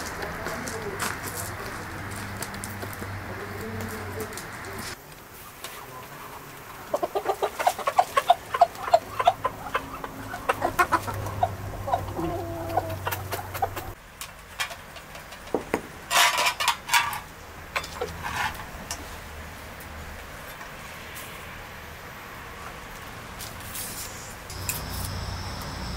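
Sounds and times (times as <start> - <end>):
chickens clucking: 3.3 - 14.0.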